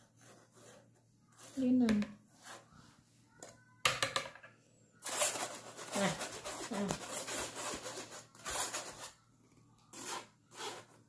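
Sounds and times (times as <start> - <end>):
whisk scraping batter through sieve: 5.0 - 9.2, 9.9 - 11.0.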